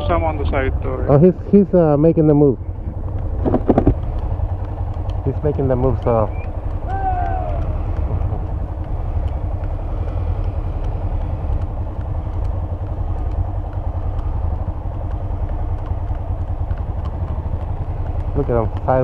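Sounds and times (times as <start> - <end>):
motorcycle engine running: 0.0 - 19.0
wind rumble: 0.0 - 19.0.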